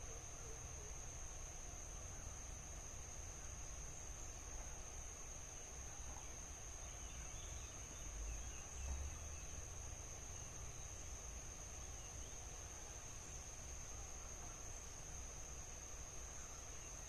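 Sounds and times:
insect high-pitched whine: 0.0 - 17.0.

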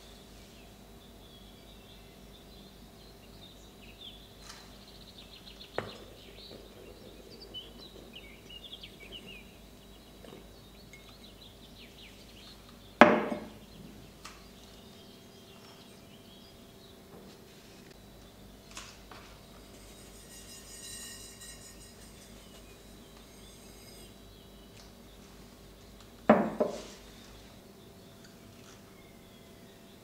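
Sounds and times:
faint bird chirping: 0.0 - 18.8, 19.4 - 26.1, 26.7 - 30.0
steady low hum: 0.0 - 30.0
kitchenware knocking: 13.0 - 13.6.

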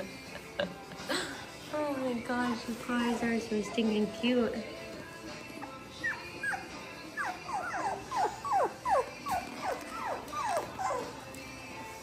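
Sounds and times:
puppy whining: 5.6 - 11.6.

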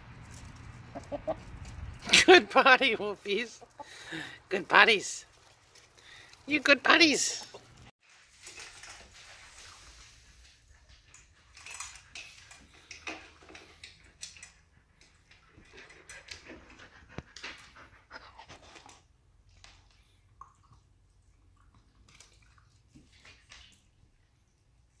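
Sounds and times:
puppy panting: 14.4 - 19.0.

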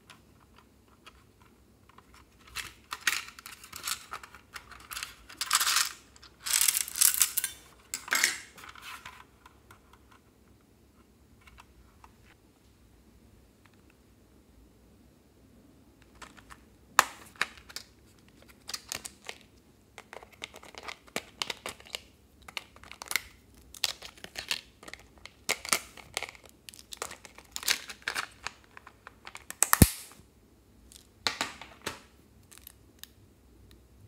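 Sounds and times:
plastic case crinkling and rustling: 17.2 - 29.6.

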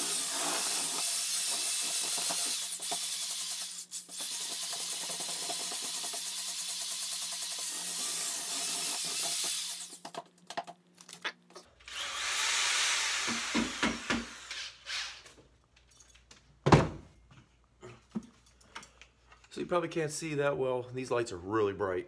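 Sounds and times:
electric drill mixing clay: 0.0 - 10.0, 11.8 - 15.2
knocks and handling noises: 15.3 - 19.5.

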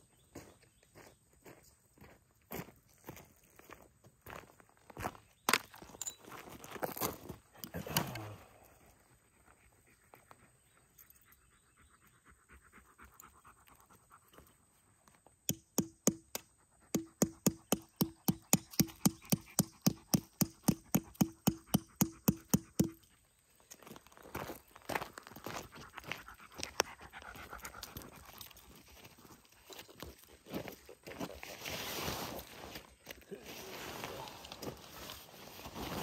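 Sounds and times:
dog panting: 8.9 - 14.6, 25.6 - 28.8.

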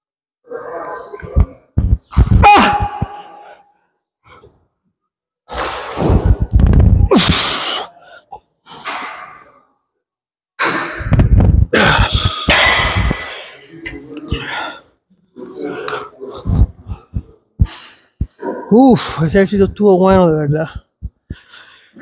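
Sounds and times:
man straining grunts: 11.7 - 13.3
man breathing hard: 21.0 - 22.0.

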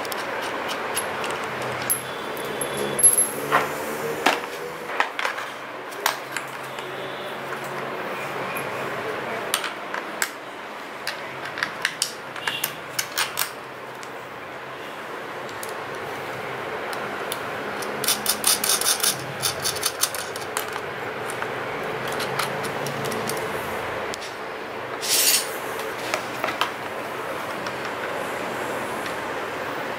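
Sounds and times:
steady background hum: 0.0 - 29.9
bicycle parts clicking: 16.9 - 23.5.

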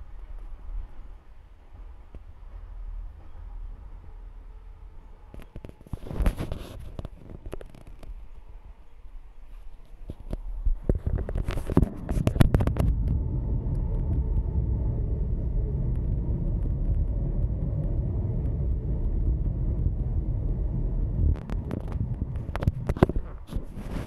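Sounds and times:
train wheels rumbling on track: 0.0 - 6.0, 11.3 - 23.8.

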